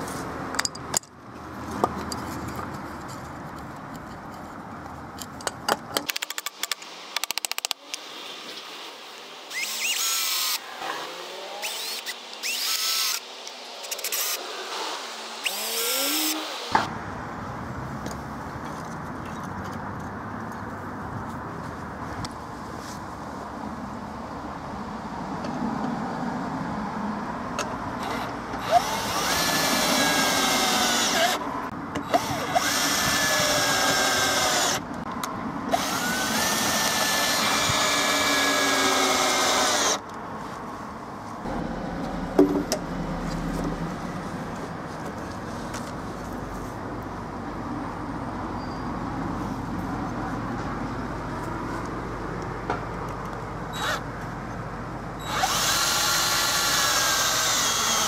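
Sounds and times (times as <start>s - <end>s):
cordless drill whining: 9.5s - 10.6s, 11.6s - 13.2s, 15.4s - 16.8s, 28.0s - 31.4s, 32.0s - 34.8s, 35.7s - 40.0s, 53.8s - 54.0s, 55.2s - 58.0s.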